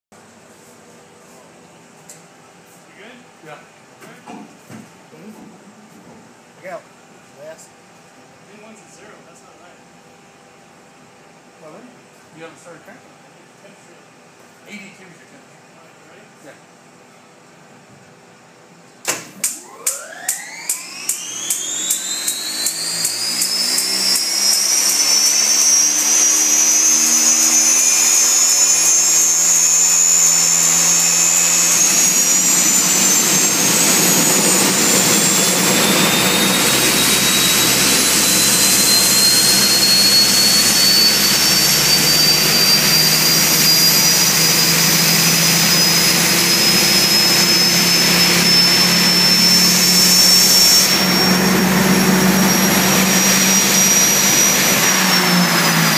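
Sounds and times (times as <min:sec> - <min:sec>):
gas turbine whine: 0:00.2 - 0:55.9
turbine rushing roar: 0:19.4 - 0:55.9.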